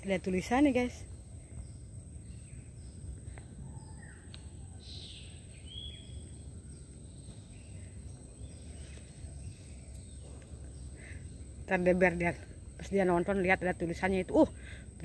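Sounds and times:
faint bird chirps: 0:00.0 - 0:11.5
low steady rumble: 0:00.0 - 0:15.0.

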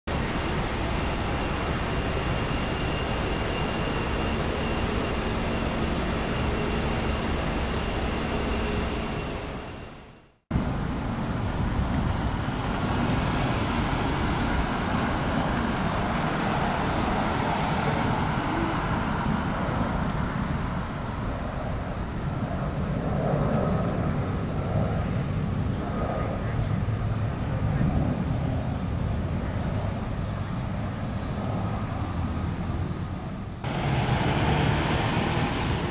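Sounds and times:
faint jet whine: 0:00.1 - 0:35.9
jet engines running: 0:00.1 - 0:35.9.

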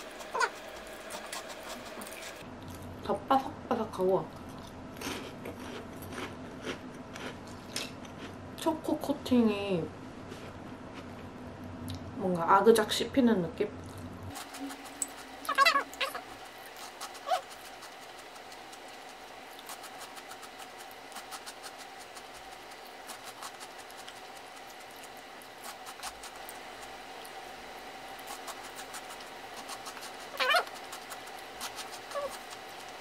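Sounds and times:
crunchy snacks being chewed: 0:04.4 - 0:08.4.

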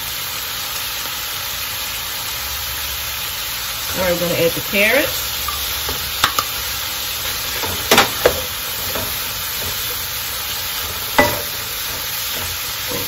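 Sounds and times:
food sizzling in a wok: 0:00.0 - 0:13.0
wooden spoon knocking on wok: 0:05.4 - 0:06.6, 0:07.5 - 0:13.0.

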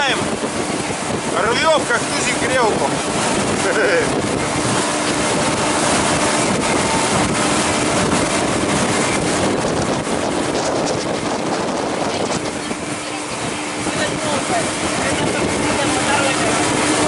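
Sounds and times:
motorboat engine drone: 0:00.0 - 0:17.0
water rushing along hull: 0:00.0 - 0:17.0
wind on microphone: 0:00.0 - 0:17.0.

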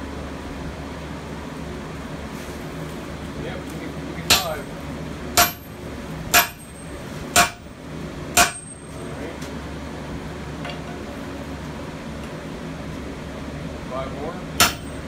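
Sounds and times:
sledgehammer ringing on anvil: 0:04.3 - 0:04.7, 0:05.4 - 0:07.7, 0:08.4 - 0:09.0, 0:14.6 - 0:15.0.

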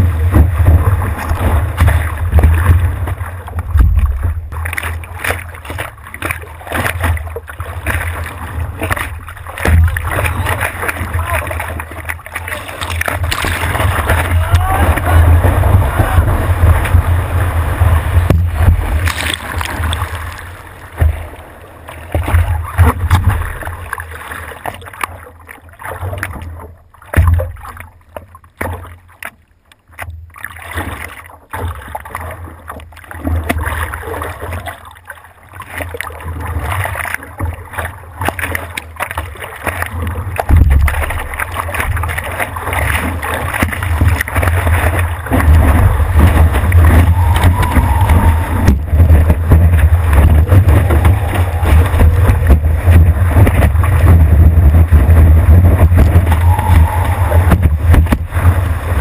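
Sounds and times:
water rushing and spraying: 0:00.0 - 0:25.1, 0:37.8 - 0:59.0
paddling on calm water: 0:00.0 - 0:59.0
wind buffeting microphone: 0:13.2 - 0:20.2, 0:45.4 - 0:59.0.

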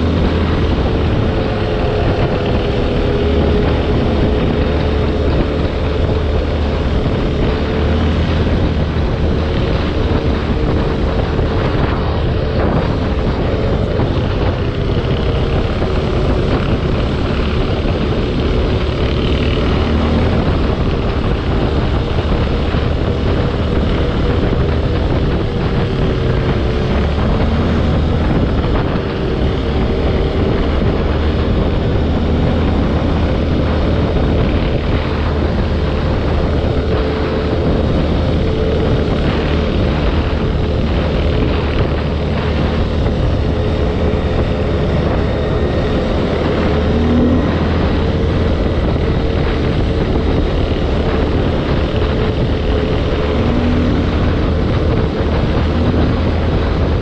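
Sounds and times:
atv engine running: 0:00.0 - 0:57.0
dense rushing noise: 0:00.0 - 0:57.0.

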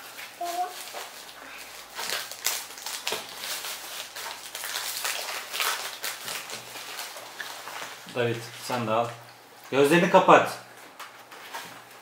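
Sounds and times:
plastic wrapper crinkling: 0:00.0 - 0:09.2.

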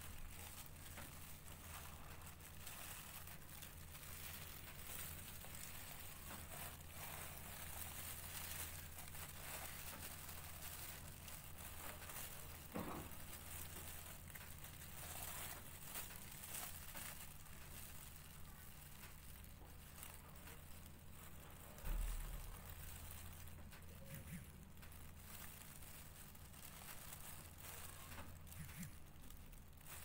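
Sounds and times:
gloves and tissue paper crinkling: 0:00.0 - 0:30.0
low steady hum: 0:00.0 - 0:30.0.

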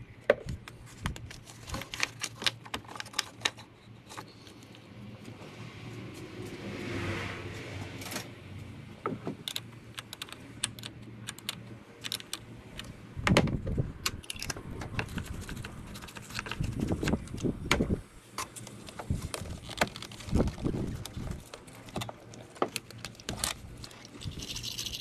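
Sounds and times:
metal clinks and rattles: 0:23.3 - 0:25.0.

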